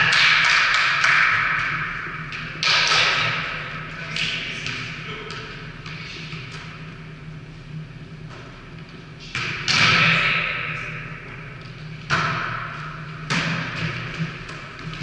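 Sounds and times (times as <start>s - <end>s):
steady low hum: 0.0s - 15.0s
volleyball thuds echoing: 12.0s - 14.8s.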